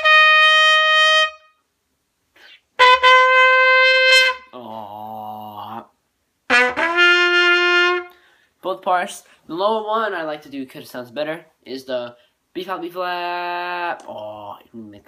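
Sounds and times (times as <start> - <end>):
trumpet playing long notes: 0.0 - 1.6, 2.8 - 4.6, 6.5 - 8.2.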